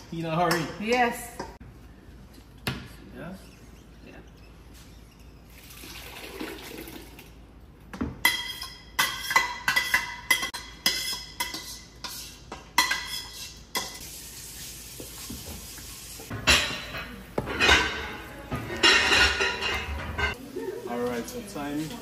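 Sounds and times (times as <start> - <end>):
spoon scraping and knocking pot: 8.2 - 14.0.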